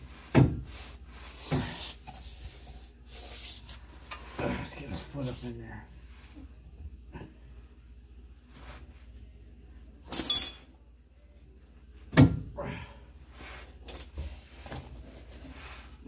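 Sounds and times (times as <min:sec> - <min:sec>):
metal tools clinking: 0:10.1 - 0:10.8.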